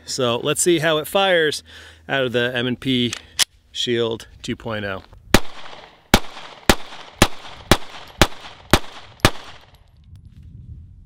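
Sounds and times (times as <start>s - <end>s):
pistol shots with ringing tail: 5.4s - 9.8s.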